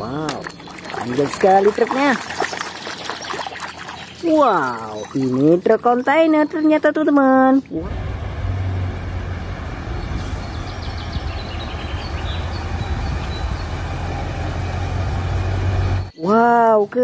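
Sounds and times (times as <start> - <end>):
truck diesel engine low revs: 7.8 - 16.1.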